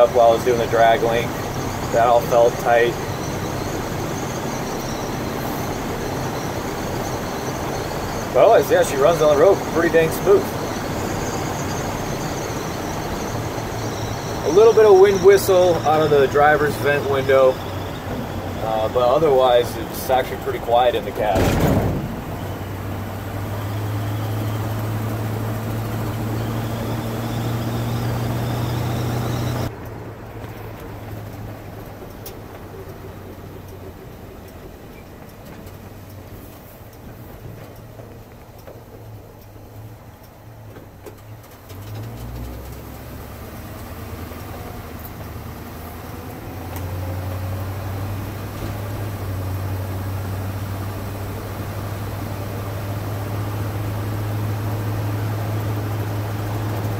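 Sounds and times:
truck engine in cab: 0.0s - 56.9s
tyre and road noise: 0.0s - 56.9s.

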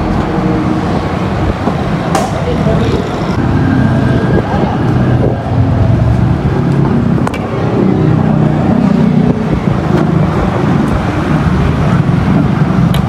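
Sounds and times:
roadside traffic noise: 0.0s - 13.0s.

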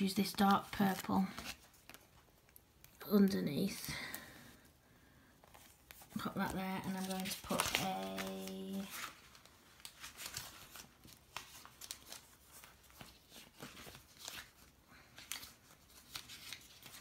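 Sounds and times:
paper sticker sheets rustling: 0.0s - 3.8s, 5.4s - 17.0s.

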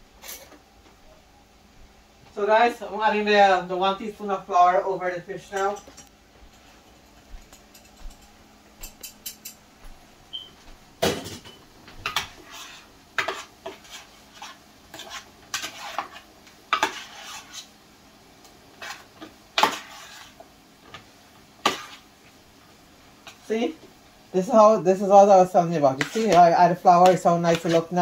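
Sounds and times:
spoon scraping ceramic bowl: 12.1s - 17.7s, 18.8s - 20.4s, 26.0s - 26.4s.

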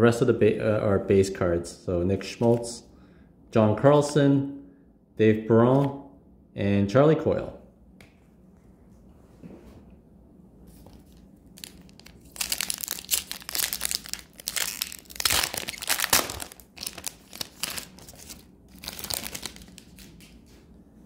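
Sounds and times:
foil wrapper tearing and crinkling: 11.6s - 20.2s.

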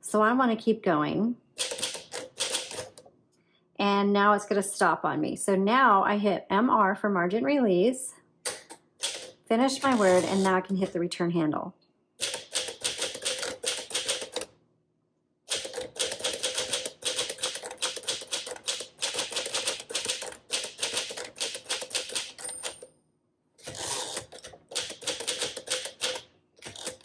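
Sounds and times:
manual typewriter clacking: 1.6s - 3.0s, 9.0s - 10.8s, 12.2s - 14.5s, 15.5s - 22.8s, 23.6s - 27.0s.

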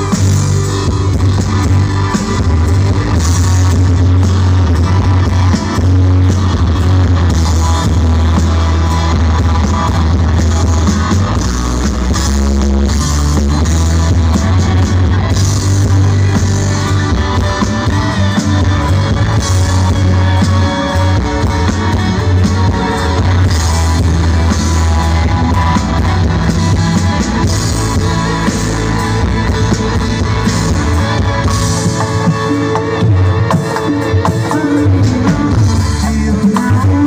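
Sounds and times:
drums: 0.0s - 37.0s
electric guitars: 0.0s - 37.0s
heavy bass: 0.0s - 37.0s
live band playing: 0.0s - 37.0s
person singing: 15.2s - 37.0s.

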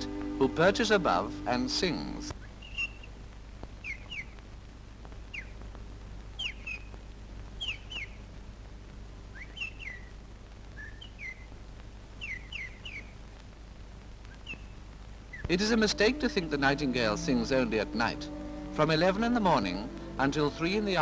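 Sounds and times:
film soundtrack hum and hiss: 0.0s - 21.0s
nightingale chirping: 2.3s - 3.2s, 3.8s - 4.4s, 5.3s - 5.6s, 6.4s - 7.0s, 7.6s - 8.3s, 9.3s - 10.1s, 10.8s - 11.5s, 12.2s - 13.2s, 14.3s - 15.7s.

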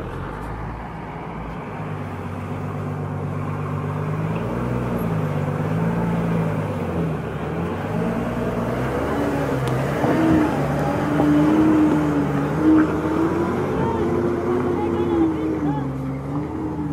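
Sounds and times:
truck diesel engine passing: 0.0s - 16.9s.

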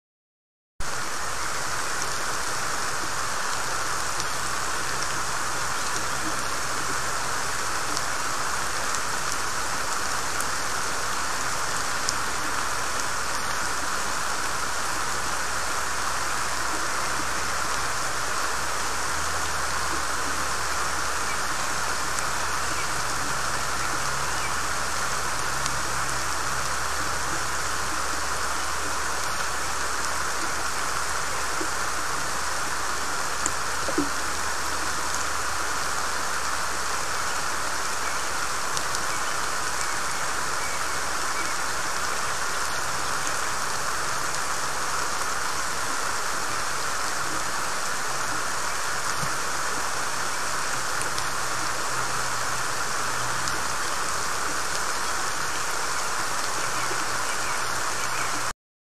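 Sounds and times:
pouring rain on forest: 0.8s - 58.5s.

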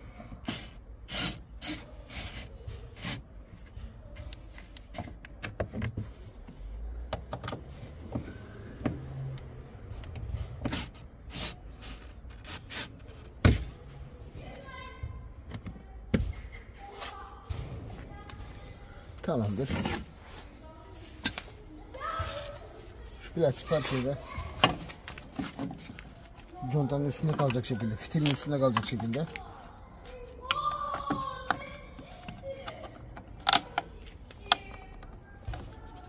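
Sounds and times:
hard plastic clicking and rubbing: 0.1s - 13.8s, 24.5s - 36.0s.

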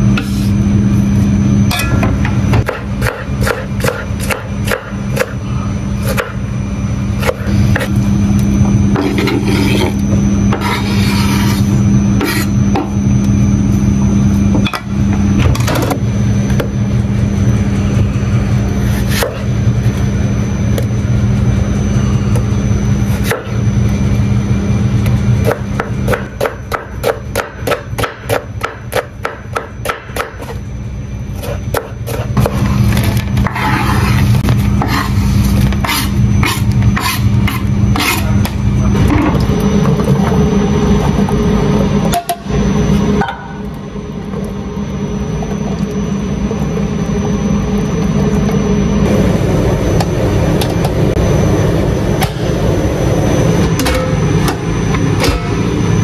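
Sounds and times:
low machine hum: 0.0s - 56.0s
knife chopping on wooden board: 2.5s - 5.4s.

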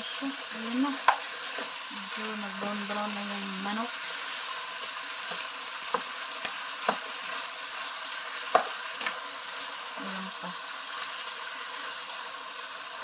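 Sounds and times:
chicken sizzling in oil: 0.0s - 13.0s
spatula knocking against pan: 8.5s - 8.8s.

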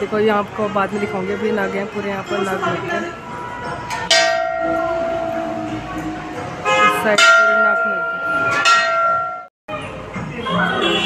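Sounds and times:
brass bell ringing: 2.3s - 9.5s.

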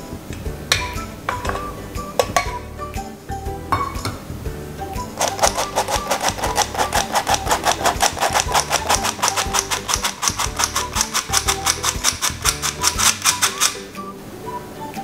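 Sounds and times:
soft background music: 0.0s - 15.0s
flour sifter clicking: 5.2s - 14.0s.

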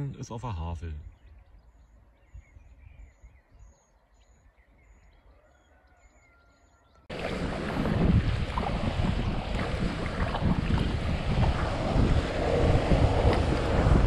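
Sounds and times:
wind buffeting microphone: 1.0s - 3.8s, 7.1s - 14.0s
faint bird calls: 1.0s - 7.0s
calm river ambience: 7.1s - 14.0s
kayak paddle splashing: 7.1s - 14.0s.

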